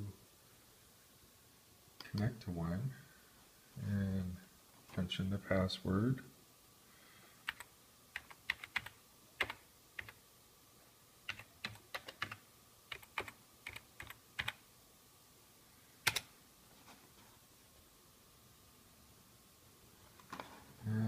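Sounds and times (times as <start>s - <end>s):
keyboard keys typing: 7.4s - 10.2s, 11.3s - 14.6s, 16.0s - 16.3s.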